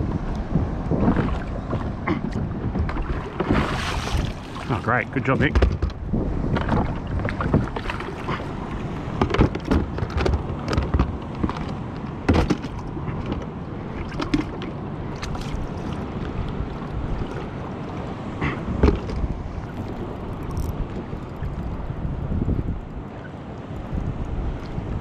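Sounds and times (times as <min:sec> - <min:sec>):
water lapping against kayak hull: 0:00.0 - 0:25.0
wind on microphone: 0:00.0 - 0:25.0
knocks of gear handled: 0:05.4 - 0:06.0.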